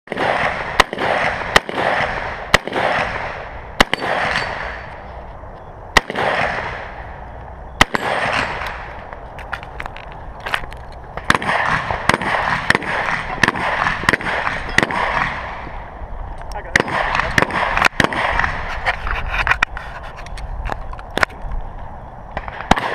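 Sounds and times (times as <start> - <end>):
rifle shots with ringing echo: 0.1 - 9.1, 11.0 - 16.0, 16.6 - 18.7, 22.3 - 22.9.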